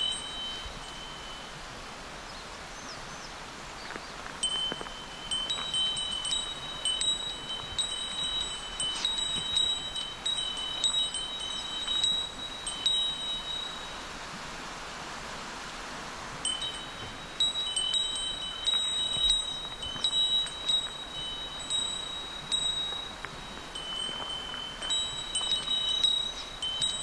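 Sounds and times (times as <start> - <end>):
small metal bell jingling: 0.0 - 1.5, 4.4 - 14.0, 16.4 - 27.0.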